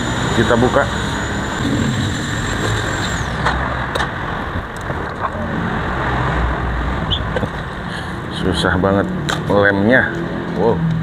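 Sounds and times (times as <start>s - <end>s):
vehicle engine rumble: 0.0s - 11.0s.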